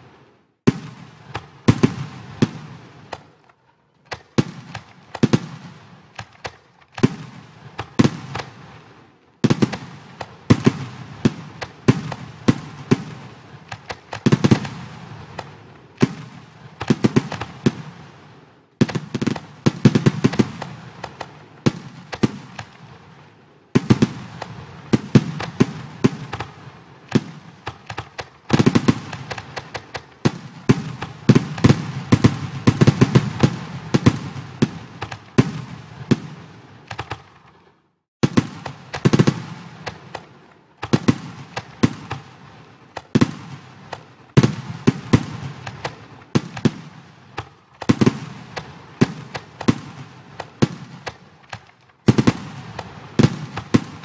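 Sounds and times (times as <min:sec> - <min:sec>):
fireworks bangs and crackling: 0:00.0 - 0:54.0.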